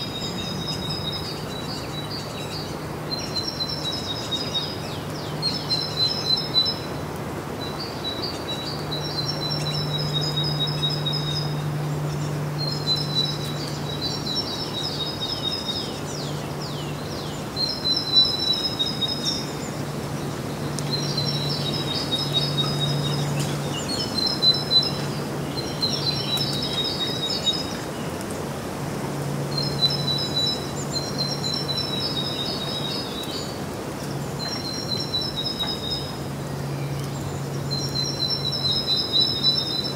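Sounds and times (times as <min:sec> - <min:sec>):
low hum and hiss outdoors: 0:00.0 - 0:39.9
songbird trilling: 0:07.6 - 0:27.9.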